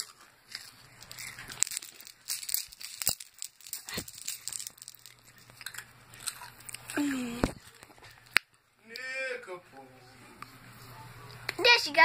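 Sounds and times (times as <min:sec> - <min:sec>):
sharp crinkling crackles: 0:00.0 - 0:08.5.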